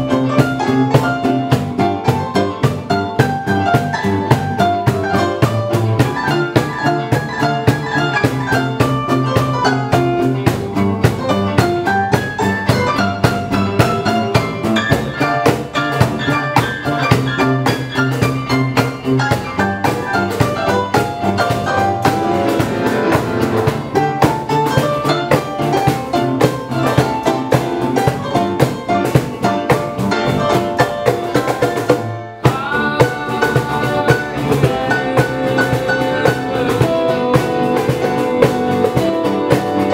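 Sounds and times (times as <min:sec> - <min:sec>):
digital piano playing chords: 0:00.0 - 0:39.9
steady percussion beat: 0:00.0 - 0:39.9.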